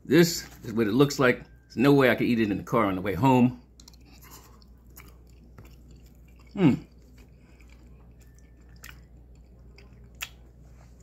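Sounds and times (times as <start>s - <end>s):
man chewing food: 3.5s - 11.0s.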